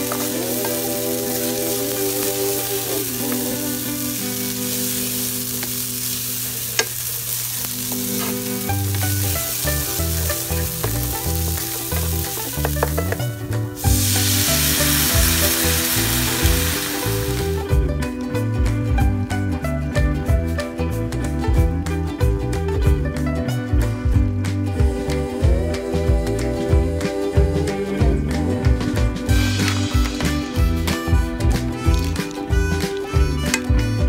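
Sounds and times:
rice frying in oil in a pan: 0.0 - 17.7.

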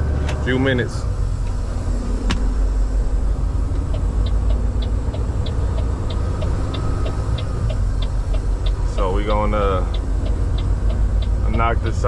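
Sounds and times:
diesel engine and road rumble: 0.0 - 12.0
quick regular ticking: 3.8 - 12.0.

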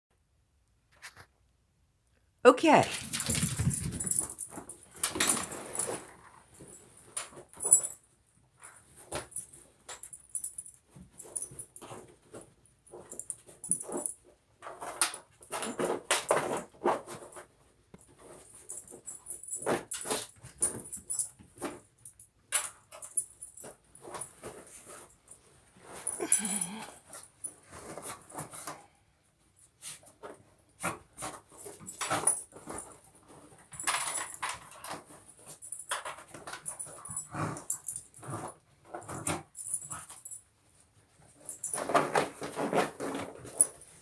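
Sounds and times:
dog whimper: 26.2 - 27.0.

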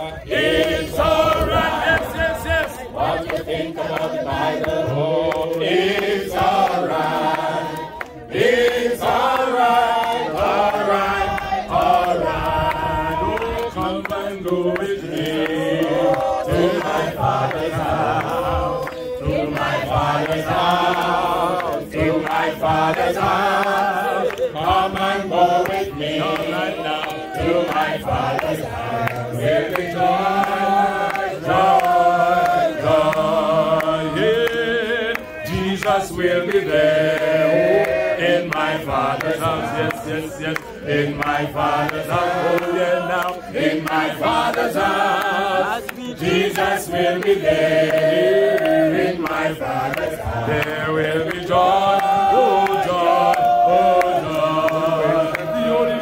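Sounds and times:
crowd singing a hymn: 0.0 - 56.0.

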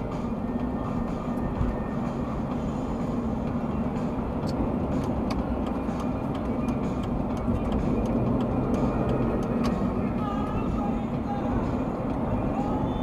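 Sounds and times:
car road and engine noise: 0.0 - 13.0
light ticks: 4.4 - 9.8.

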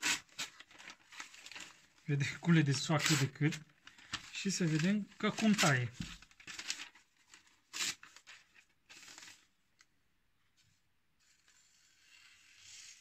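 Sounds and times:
knife slicing through paper: 0.0 - 1.9, 2.9 - 3.4.

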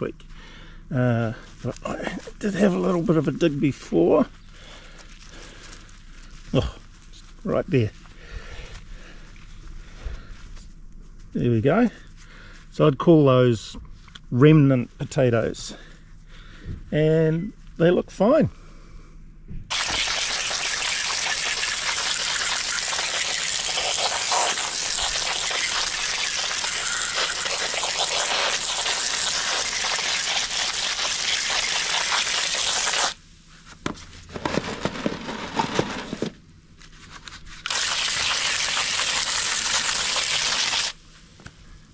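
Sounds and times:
garden hose spraying water: 19.7 - 33.2, 37.6 - 41.1.

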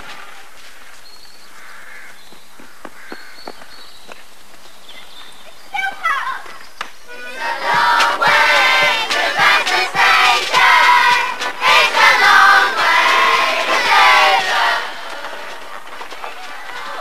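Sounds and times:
marching feet tramping: 0.0 - 4.8, 6.4 - 17.0
crowd singing together: 7.1 - 17.0.

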